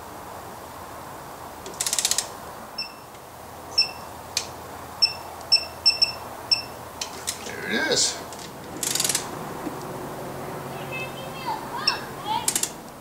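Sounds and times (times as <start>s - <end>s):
torque wrench ratchet clicks: 1.7s - 2.3s, 8.8s - 9.2s, 12.4s - 12.8s
short high beeps: 2.8s - 3.1s, 3.8s - 4.1s, 5.0s - 6.8s.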